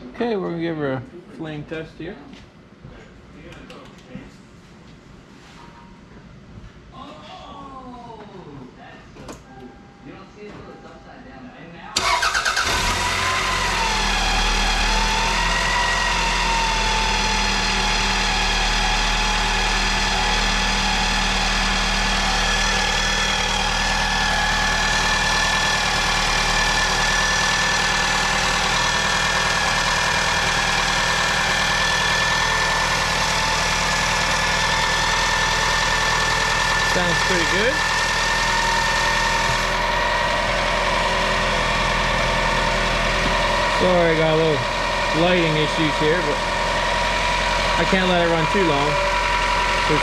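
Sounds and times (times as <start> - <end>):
car engine idling: 12.0 - 50.0
steady belt whine: 12.0 - 50.0.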